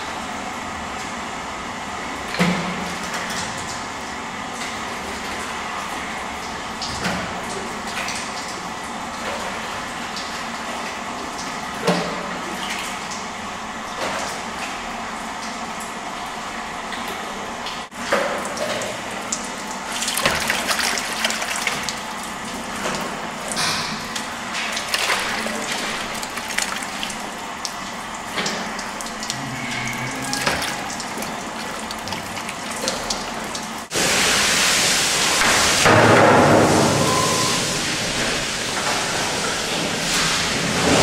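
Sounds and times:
curd splashing and sloshing: 17.8 - 35.9.

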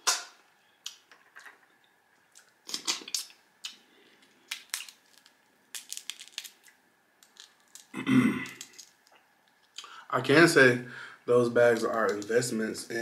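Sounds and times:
crab shells cracking: 4.4 - 9.8, 11.7 - 12.4.

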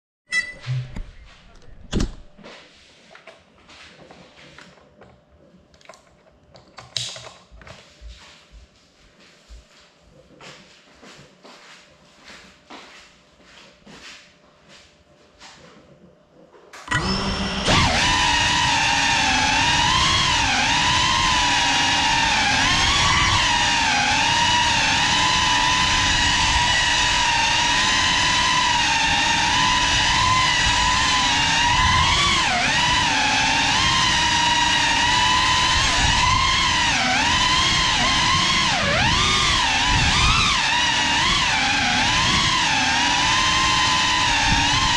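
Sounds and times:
drone motors whining: 16.8 - 44.9.

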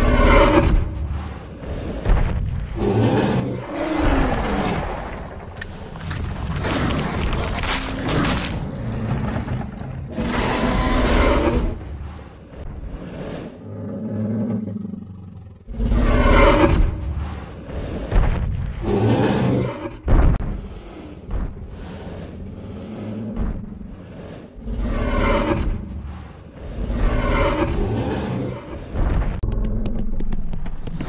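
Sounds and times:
low rumble: 0.0 - 13.4
deep dinosaur roars: 0.0 - 18.1, 18.8 - 29.9.

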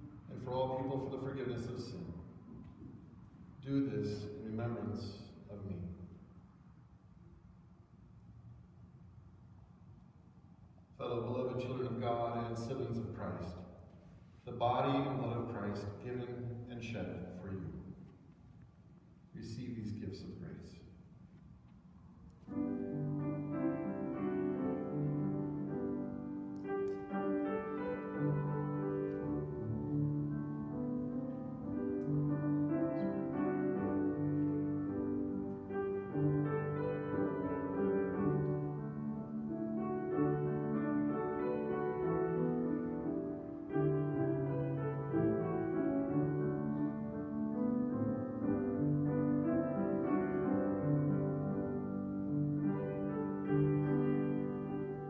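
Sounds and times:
instrumental piano music: 22.4 - 55.0.

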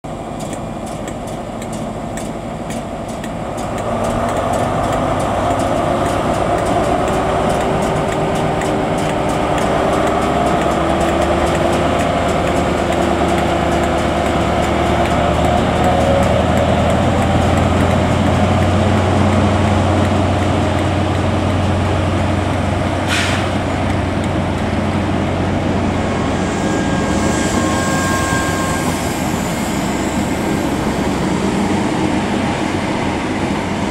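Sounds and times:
train coaches rolling by: 0.0 - 33.9
train diesel engine drone: 0.0 - 33.9
brief sharp noise: 23.0 - 23.6.

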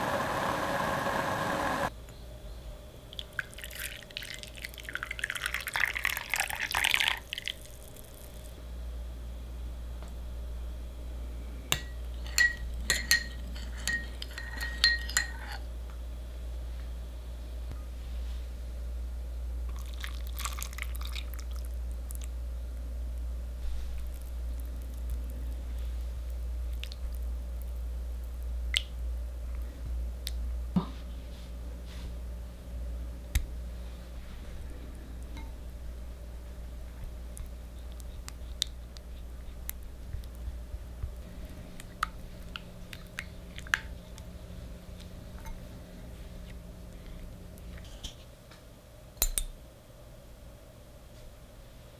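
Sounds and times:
steady low hum: 0.0 - 51.9
metal spoon clinking glass bowl: 11.8 - 15.6.

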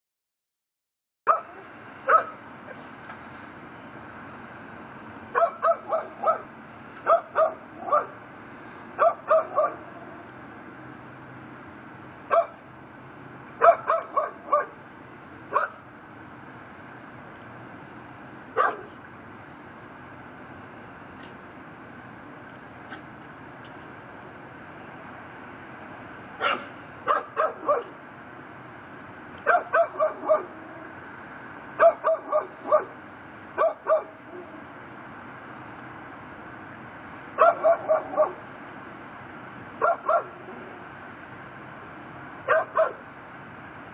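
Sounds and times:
dog barking: 1.3 - 2.4, 5.3 - 8.2, 9.0 - 10.0, 12.3 - 12.6, 13.6 - 14.8, 15.5 - 15.8, 18.6 - 19.0, 26.4 - 28.0, 29.4 - 30.6, 31.8 - 33.0, 33.6 - 34.5, 37.4 - 38.4, 39.8 - 40.7, 42.5 - 43.1.

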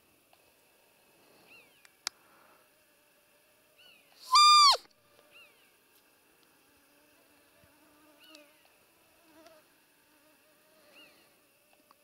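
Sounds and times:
faint steady hum: 0.0 - 12.0
deer call decoy squeak: 4.3 - 4.8.

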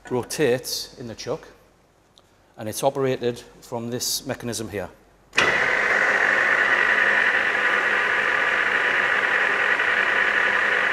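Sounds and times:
lathe whirring with high whine: 5.4 - 10.9.

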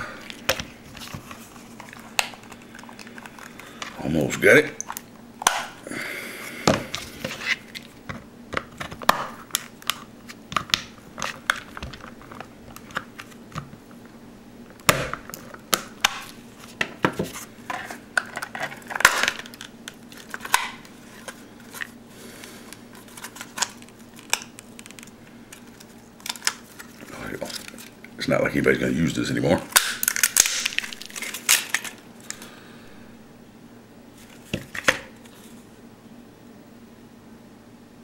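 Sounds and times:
loud plastic snaps: 29.7 - 31.9.

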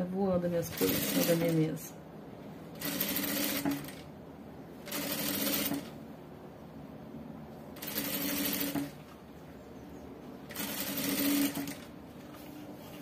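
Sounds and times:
sewing machine stitching: 0.7 - 1.6, 2.8 - 4.1, 4.9 - 5.9, 7.8 - 9.0, 10.5 - 11.9.

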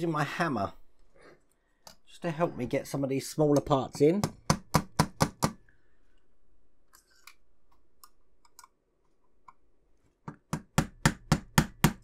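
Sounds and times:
plastic parts clicking: 6.9 - 9.7.

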